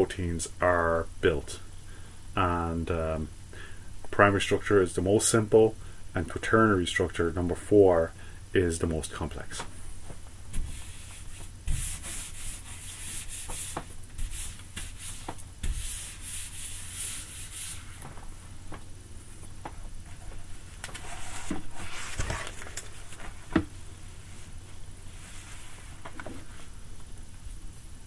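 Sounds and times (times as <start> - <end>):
eraser rubbing on whiteboard: 10.6 - 18.0.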